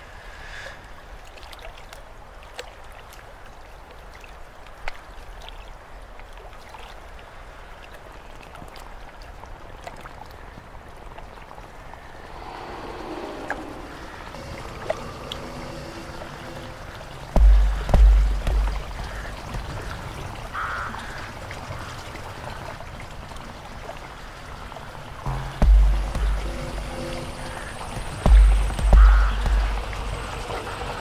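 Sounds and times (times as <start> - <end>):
rushing hissing noise: 12.0 - 19.9, 25.3 - 31.0.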